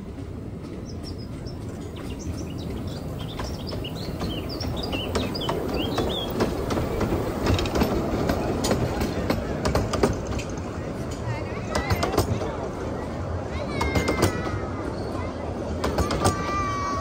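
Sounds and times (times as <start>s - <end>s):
steam locomotive rumble: 0.0s - 16.9s
birds chirping: 0.6s - 9.2s
carriage wheels clicking over track: 3.2s - 12.5s.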